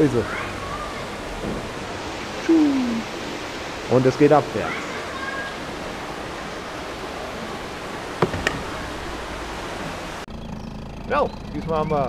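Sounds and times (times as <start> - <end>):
water rushing: 0.0 - 10.3
sharp knocks: 8.1 - 9.2.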